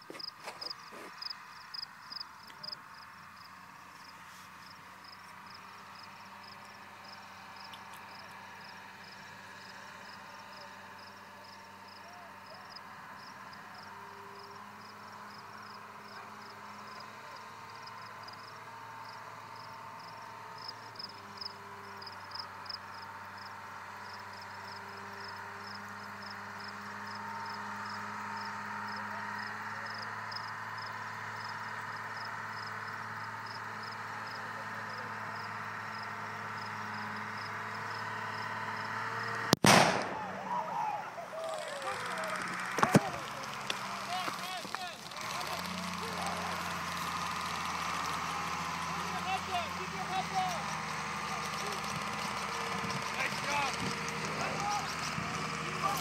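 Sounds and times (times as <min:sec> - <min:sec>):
insects chirping: 0:00.0 - 0:39.0
vehicle engine approaching: 0:00.0 - 0:56.0.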